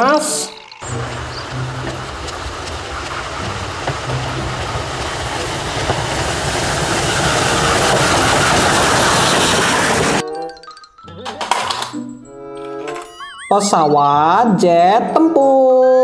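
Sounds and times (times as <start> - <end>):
steam locomotive running: 0.0 - 10.2.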